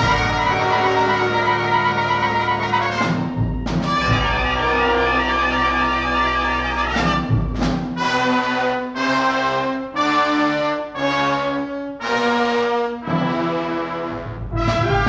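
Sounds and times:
brass sustained chords: 0.0s - 3.2s, 3.9s - 7.4s.

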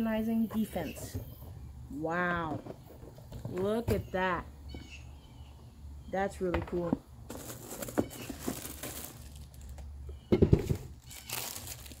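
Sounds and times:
plastic bag rustling: 7.2s - 9.9s, 10.5s - 12.0s.

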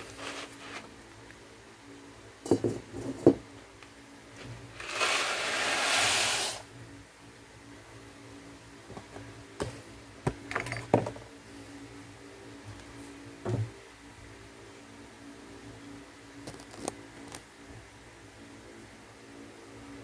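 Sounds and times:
box and pot knocks: 2.5s - 3.4s, 10.3s - 11.2s.

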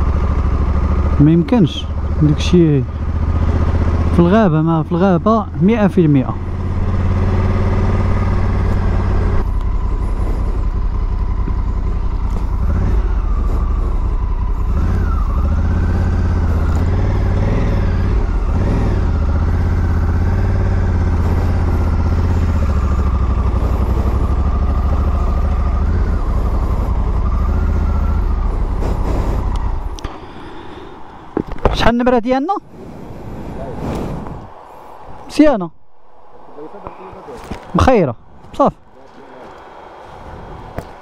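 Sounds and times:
motorcycle engine revving: 0.0s - 31.8s.

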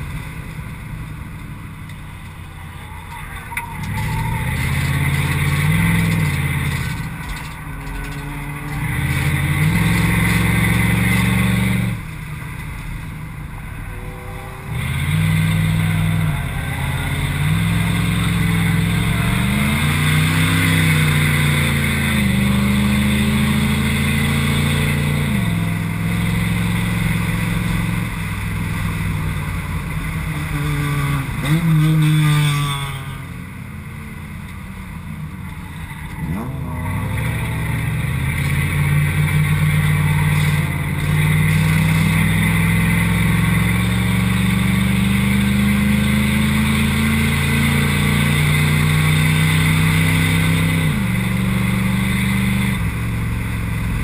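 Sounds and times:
car engine revving from inside cabin: 3.7s - 7.0s, 8.0s - 12.0s, 36.2s - 52.9s.

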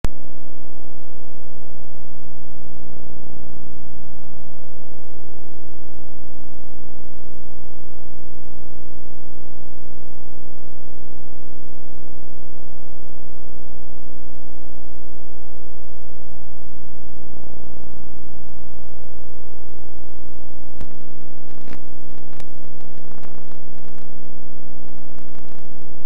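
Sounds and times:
electrical hum with hiss: 0.1s - 26.0s
sharp clicks and crackles: 20.7s - 26.0s.

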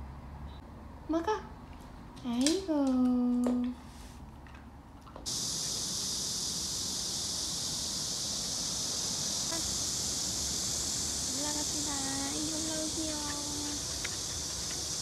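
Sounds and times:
cicadas buzzing: 5.3s - 15.0s
drawn-out voice: 9.4s - 9.9s, 11.1s - 14.2s.

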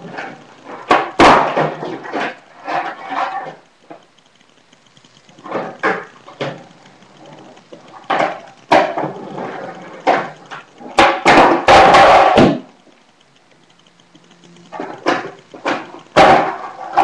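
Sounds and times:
skateboard clattering: 0.0s - 3.6s, 8.0s - 12.8s, 14.9s - 17.0s
skateboard wheels rolling on concrete: 8.0s - 12.7s
skateboard tail popping and landing: 10.9s - 12.7s.

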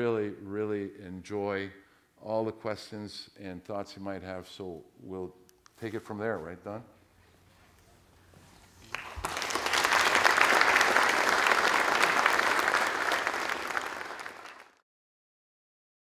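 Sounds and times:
audience applauding: 8.8s - 14.8s.

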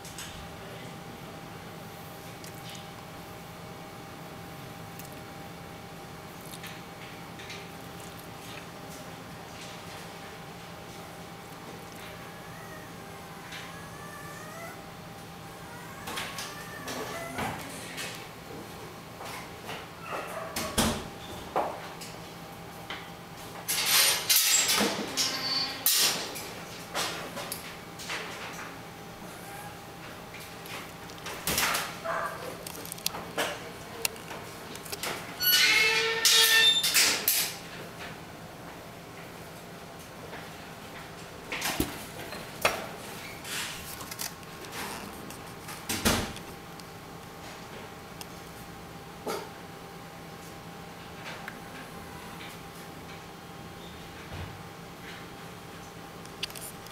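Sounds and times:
puppy gnawing on a chew stick: 6.3s - 9.1s, 30.3s - 35.2s.

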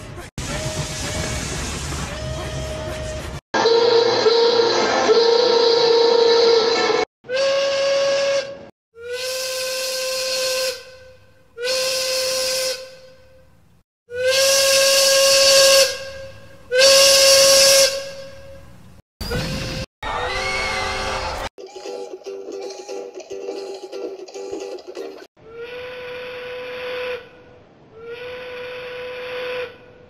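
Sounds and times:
steam whistle blasts: 0.4s - 1.6s, 3.6s - 13.4s, 14.1s - 18.7s, 25.6s - 27.3s, 28.0s - 30.0s
steam hissing: 0.4s - 2.3s.

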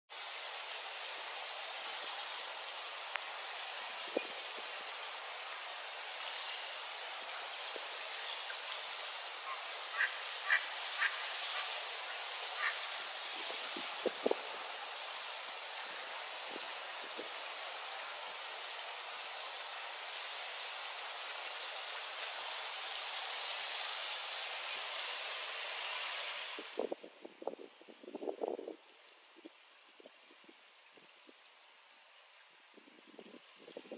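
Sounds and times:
freezing rain hiss: 0.1s - 33.9s.

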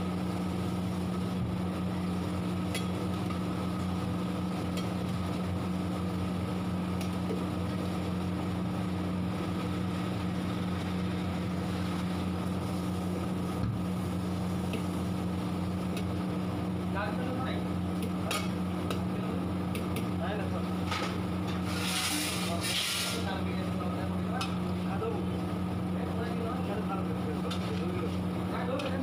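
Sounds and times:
machine hum: 0.0s - 29.0s.

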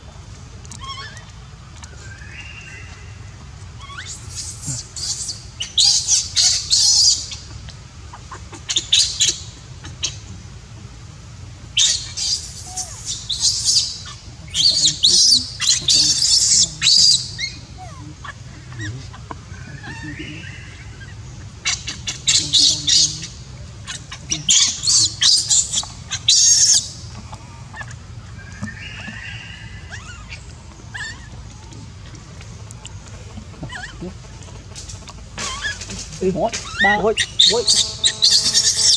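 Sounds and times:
baby monkey squealing cries: 0.7s - 1.3s, 3.8s - 7.5s, 11.8s - 26.9s, 27.7s - 31.4s, 33.7s - 34.0s, 35.4s - 36.0s, 36.6s - 38.9s.

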